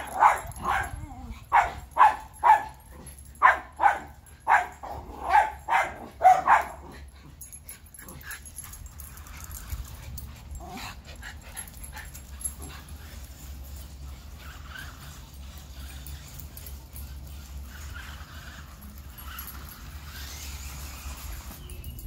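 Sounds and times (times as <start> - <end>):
dogs barking: 0.0 - 7.1.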